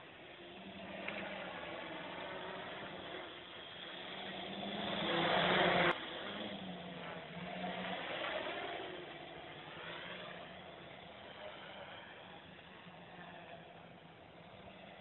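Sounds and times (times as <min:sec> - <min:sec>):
quadcopter motors whirring: 0:00.0 - 0:15.0.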